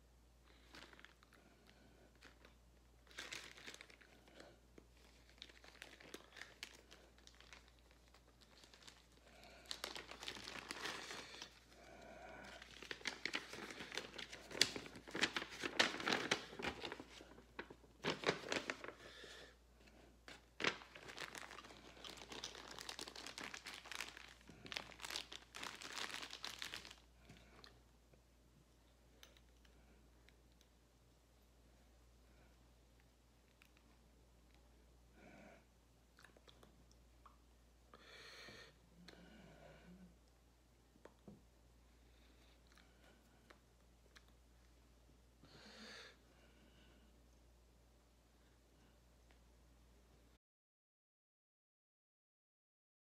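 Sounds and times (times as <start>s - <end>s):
plastic bag crinkling: 0.5s - 19.2s, 20.3s - 27.7s.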